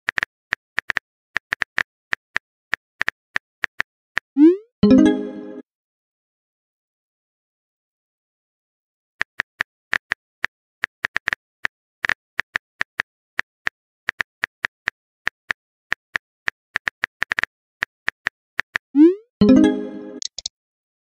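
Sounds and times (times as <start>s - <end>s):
phone keyboard typing clicks: 20.2s - 20.5s.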